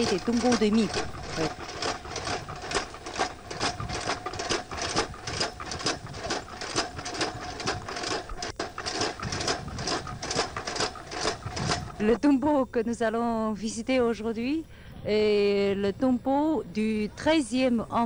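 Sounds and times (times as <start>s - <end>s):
rhythmic mechanical clatter: 0.0s - 12.4s
faint hum: 0.0s - 18.0s.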